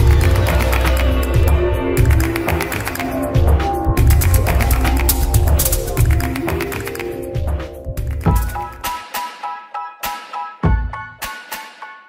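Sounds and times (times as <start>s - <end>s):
rhythmic music with struck notes: 0.0s - 12.0s.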